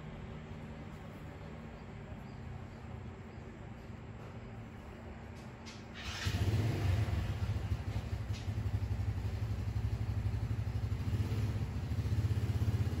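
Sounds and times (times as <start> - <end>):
engine idling: 5.6 - 13.0.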